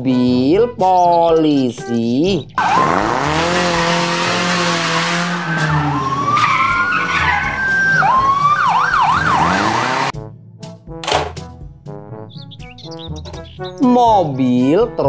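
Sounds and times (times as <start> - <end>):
police siren wailing and yelping: 2.6 - 3.8, 5.3 - 10.1
cars moving: 2.6 - 10.1.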